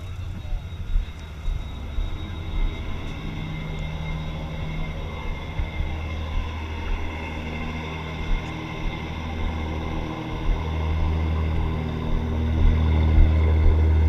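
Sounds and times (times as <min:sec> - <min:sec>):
ferry engines droning: 0:00.0 - 0:14.0.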